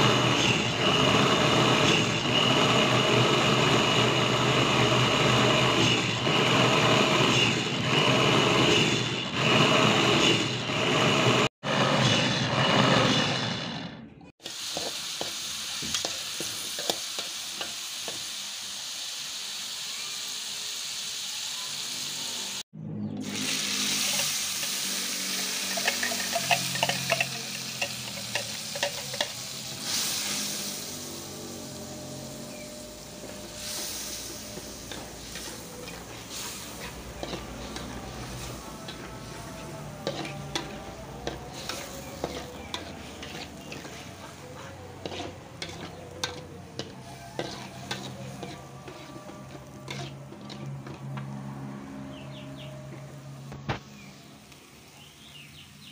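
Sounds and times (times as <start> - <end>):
hot oil sizzling in a wok: 0.0 - 11.4, 14.4 - 51.3
electric food chopper grinding: 0.0 - 14.1, 23.2 - 51.2
metal utensils scraping a wok: 14.5 - 18.2, 23.2 - 53.5.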